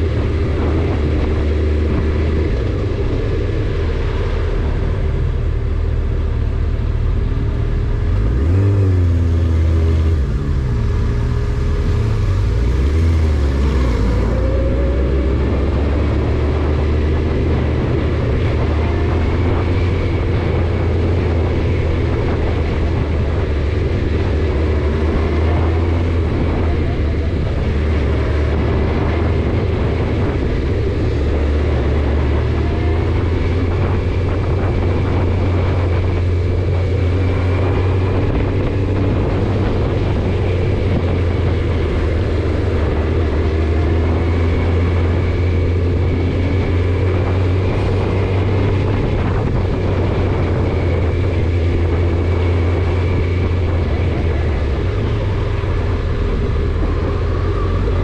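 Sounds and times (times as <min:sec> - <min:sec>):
car engine and road drone: 0:00.0 - 0:58.0.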